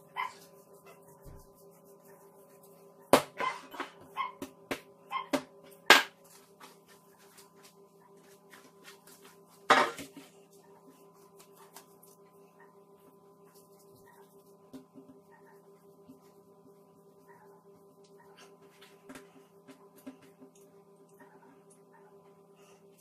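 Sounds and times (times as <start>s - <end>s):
steady hum: 0.0s - 23.0s.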